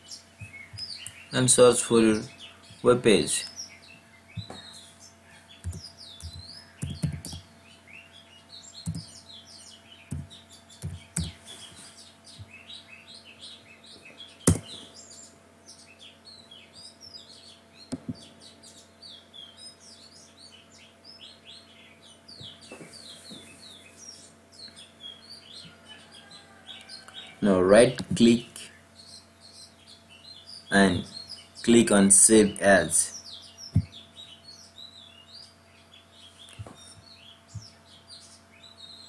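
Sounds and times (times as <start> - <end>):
birds chirping: 0.0 - 39.0
faint steady hum: 0.0 - 39.0
keyboard and mouse clicks: 5.6 - 7.4, 8.8 - 9.1.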